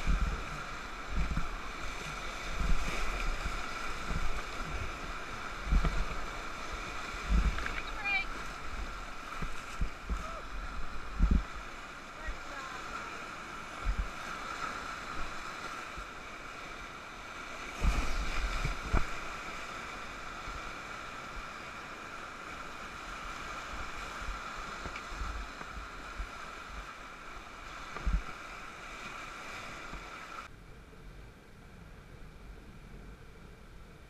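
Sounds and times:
whitewater rapids rushing: 0.0s - 30.5s
dull low thumps: 5.6s - 6.2s, 7.2s - 7.9s, 8.8s - 11.6s, 13.8s - 14.1s.

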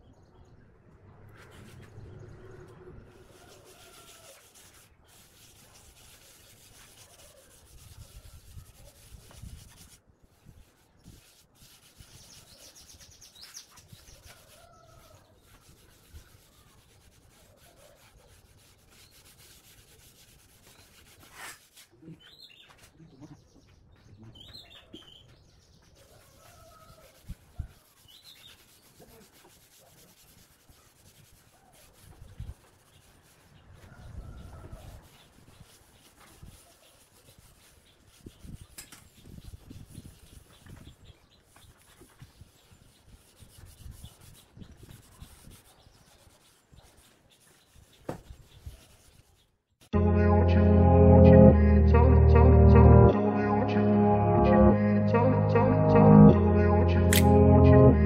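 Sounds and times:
cloth scrubbing on wood: 3.2s - 10.0s, 10.6s - 22.5s, 27.0s - 49.5s.

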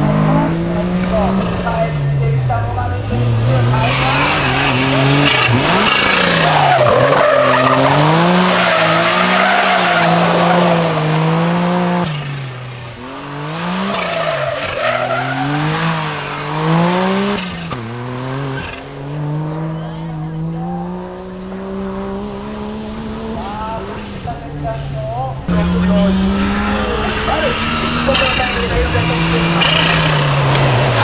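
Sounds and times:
car engine revving: 0.0s - 31.0s
tyres squealing: 3.1s - 19.1s.

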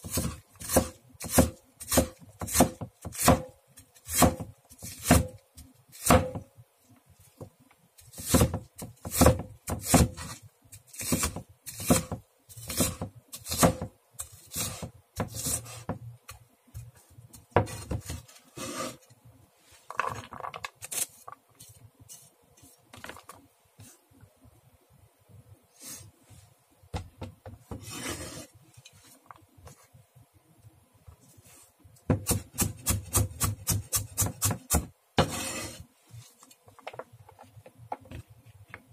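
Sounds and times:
blade scraping onion across board: 0.0s - 5.3s, 8.0s - 16.0s, 17.6s - 19.1s, 27.7s - 28.5s, 32.2s - 35.9s
knife chopping onion on board: 0.0s - 5.4s, 6.0s - 6.5s, 8.1s - 10.4s, 11.0s - 18.3s, 32.1s - 35.8s.

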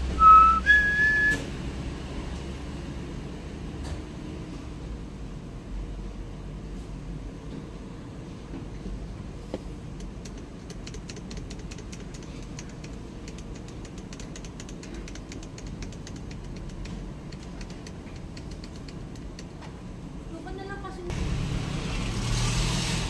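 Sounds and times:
fast irregular ticking: 9.9s - 19.6s.

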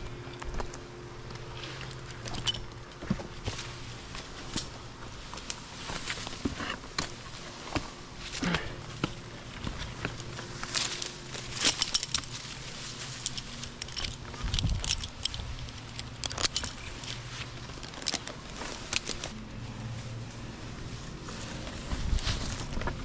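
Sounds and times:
low steady hum: 0.0s - 23.0s
climbing hardware clicking and jangling: 1.8s - 3.5s, 9.0s - 19.3s.

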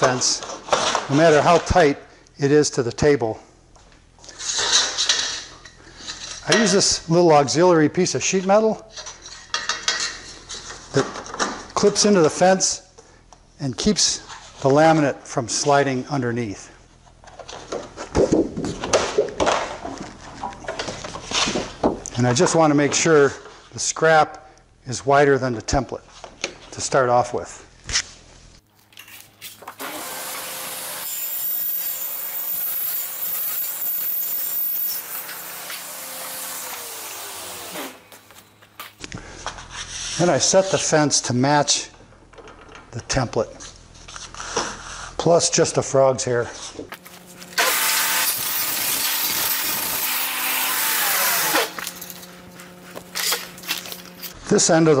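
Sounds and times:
table saw cutting plastic: 29.0s - 38.7s, 47.0s - 54.4s.

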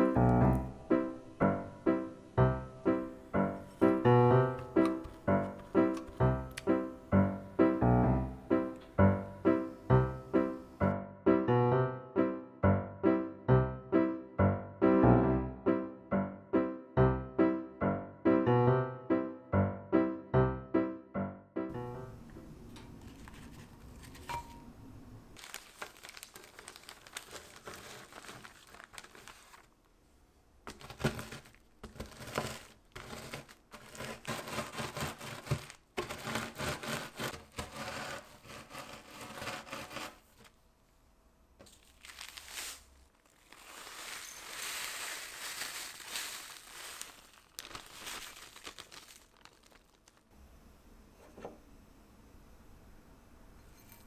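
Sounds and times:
biscuit crumbs crackling: 25.4s - 29.9s, 30.7s - 40.2s, 41.6s - 50.3s
plastic bag crinkling: 25.4s - 29.9s, 30.7s - 40.5s, 41.6s - 50.3s.

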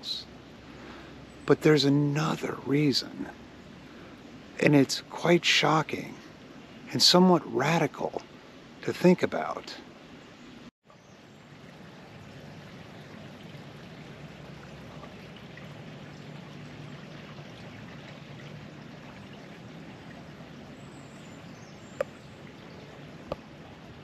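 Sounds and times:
stream water rushing: 0.0s - 10.0s, 11.0s - 24.0s.

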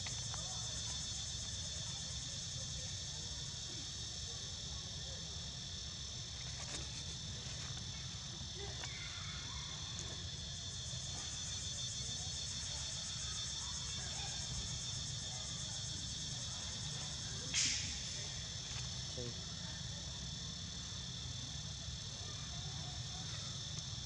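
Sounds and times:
insect chorus: 0.0s - 24.0s.

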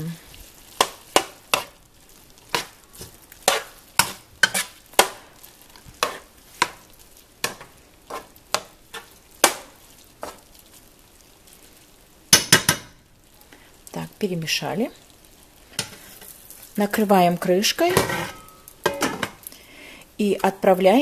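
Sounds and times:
faint hiss: 0.0s - 21.0s
utensil knocking and scraping pan: 2.5s - 5.2s, 6.0s - 6.8s, 17.9s - 19.4s.

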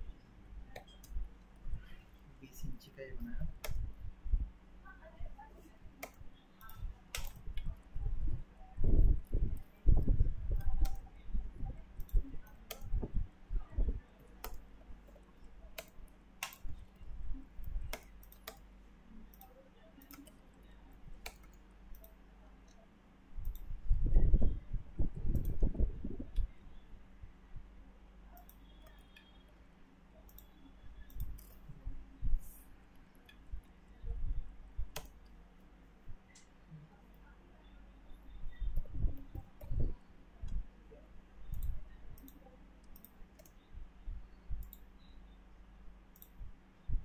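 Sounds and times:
faint steady hum: 0.0s - 47.0s
mouse clicks and keystrokes: 0.6s - 2.0s, 3.2s - 4.0s, 5.9s - 7.9s, 8.8s - 24.2s, 25.1s - 26.6s, 28.3s - 29.5s, 30.2s - 35.5s, 36.1s - 40.7s, 41.4s - 46.6s.

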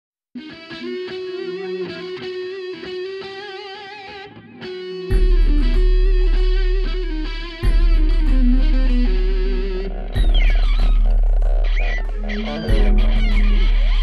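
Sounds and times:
electric guitar sustained notes: 0.4s - 14.0s
deep bass part: 5.1s - 14.0s.

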